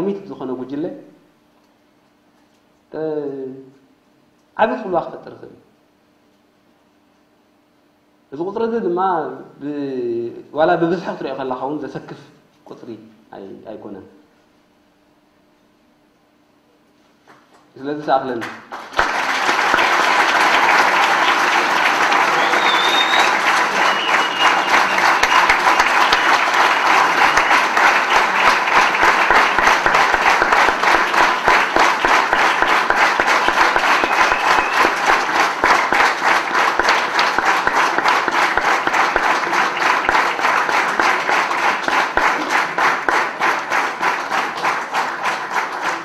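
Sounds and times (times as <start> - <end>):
large audience applauding: 18.4 - 46.0.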